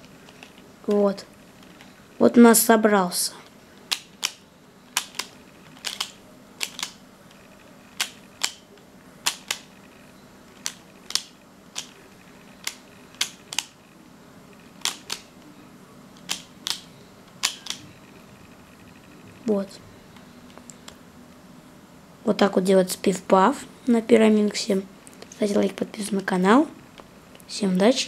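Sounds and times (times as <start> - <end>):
plastic puzzle clicking: 3.9 - 7.0, 8.0 - 8.6, 9.2 - 9.7, 10.6 - 12.0, 12.6 - 13.7, 14.8 - 15.3, 16.2 - 16.8, 17.4 - 17.8.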